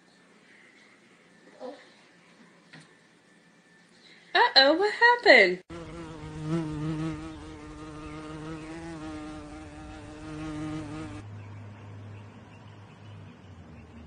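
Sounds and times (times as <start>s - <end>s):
flying insect buzzing: 5.7s - 11.2s.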